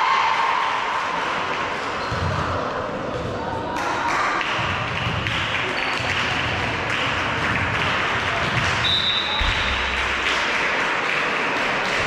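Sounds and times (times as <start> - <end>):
chatter and calls of players: 0.0 - 12.0
referee's whistle: 8.8 - 9.8
volleyball being hit: 9.3 - 10.4.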